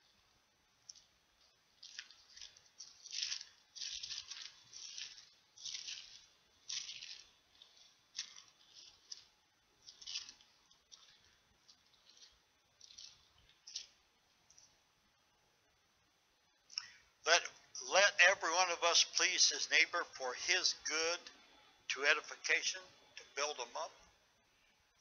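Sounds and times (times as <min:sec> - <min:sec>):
pages rustling: 0:00.8 - 0:14.8.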